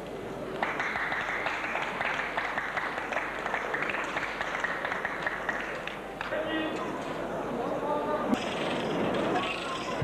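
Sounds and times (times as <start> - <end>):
audience applauding: 0.6 - 6.3.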